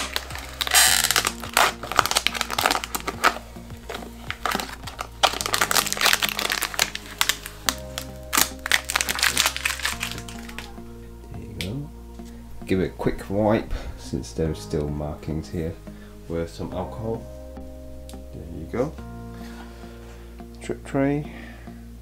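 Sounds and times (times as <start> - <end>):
plastic film crinkling: 0.0 - 10.8
background music: 0.0 - 22.0.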